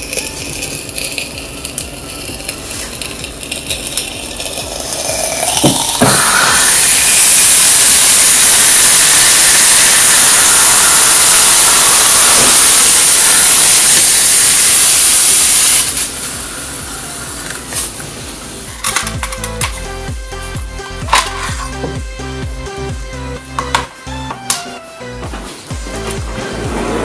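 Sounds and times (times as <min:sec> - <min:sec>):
cola boiling and foaming: 0:00.0 - 0:18.7
hot knife hissing into plastic: 0:00.0 - 0:19.9.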